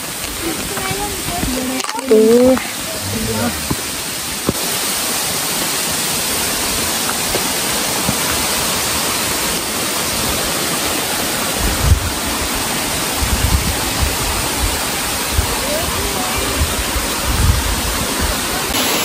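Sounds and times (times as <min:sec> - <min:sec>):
stream water rushing: 0:00.0 - 0:19.0
low thumps: 0:02.5 - 0:04.0.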